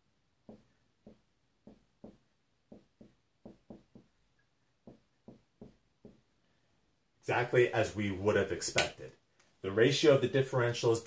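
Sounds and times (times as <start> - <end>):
marker writing on whiteboard: 0.4 - 6.3.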